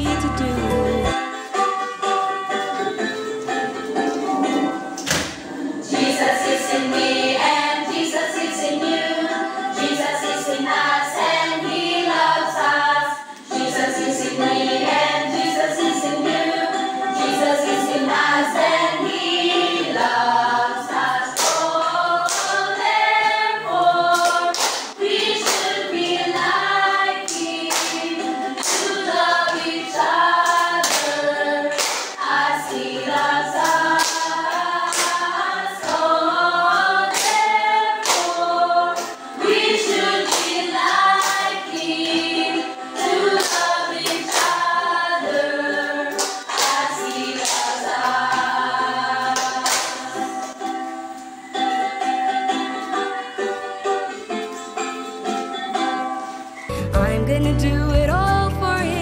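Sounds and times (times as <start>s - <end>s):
group of young voices singing: 4.4s - 56.1s
sharp hand claps: 21.4s - 22.8s, 24.2s - 25.9s, 27.3s - 29.6s, 30.4s - 31.2s, 31.8s - 32.3s, 33.6s - 36.0s, 37.1s - 38.4s, 39.9s - 41.9s, 46.1s - 48.2s, 49.3s - 50.6s.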